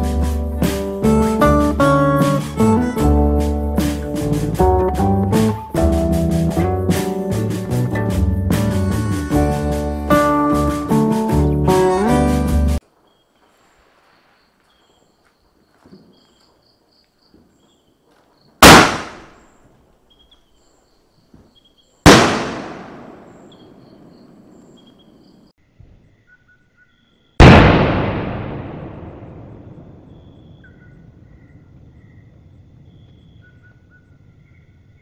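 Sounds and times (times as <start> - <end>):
fireworks bangs: 18.6 - 19.4, 22.1 - 24.6, 27.4 - 30.4.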